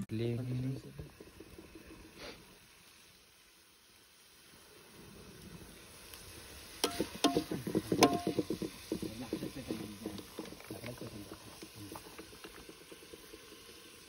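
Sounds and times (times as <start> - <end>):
onion and tomato sizzling: 0.0 - 14.0
ladle clinking and knocking pot: 6.8 - 10.7.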